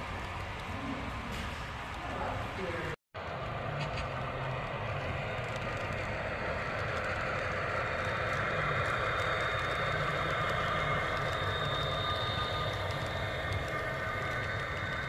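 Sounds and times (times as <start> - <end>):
diesel engine sound from speakers: 3.2 - 15.0
thin high whine: 4.8 - 15.0.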